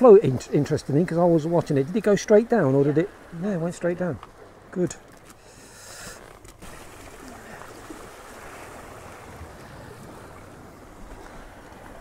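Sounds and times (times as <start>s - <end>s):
waves washing against rocks: 6.6s - 12.0s.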